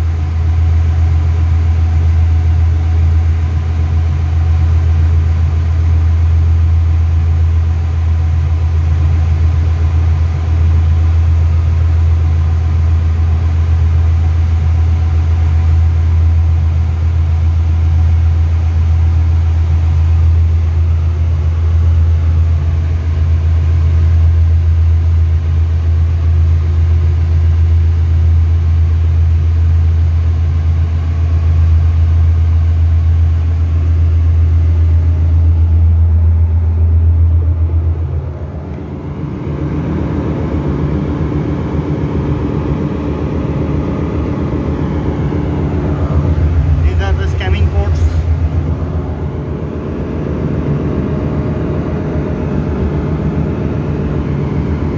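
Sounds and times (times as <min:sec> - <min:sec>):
engine-room machinery drone: 0:00.0 - 0:54.9.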